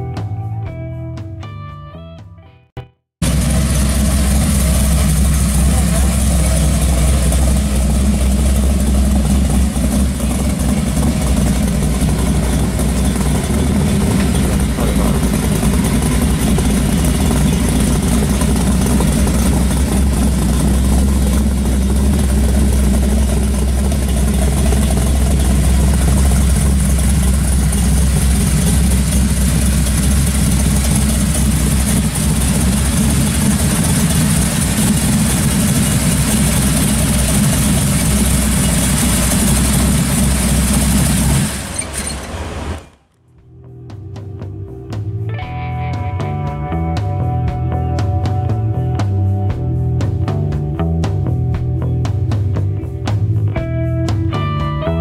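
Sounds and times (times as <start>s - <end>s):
car engine idling: 3.2s - 55.0s.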